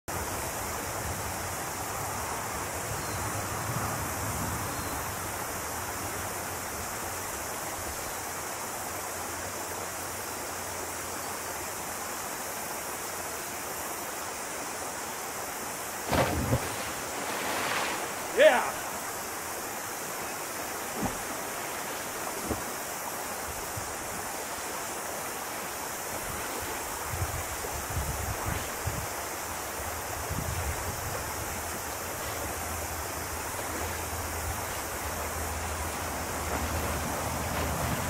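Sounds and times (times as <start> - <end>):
steady background hiss: 0.1 - 38.0
loud splash into river: 16.0 - 19.2.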